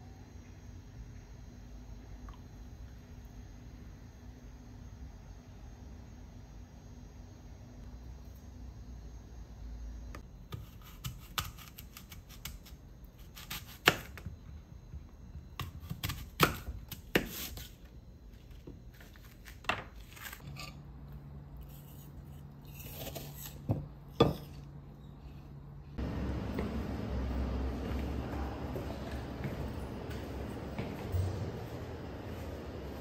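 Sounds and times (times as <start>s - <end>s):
faint low hum: 0.0s - 33.0s
knife slicing apple on board: 15.6s - 17.8s.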